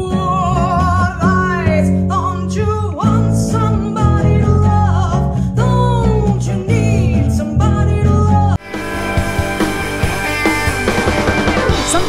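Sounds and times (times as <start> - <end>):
woman singing with vibrato: 0.0 - 8.6
acoustic guitar: 0.0 - 12.0
electric bass: 0.0 - 12.0.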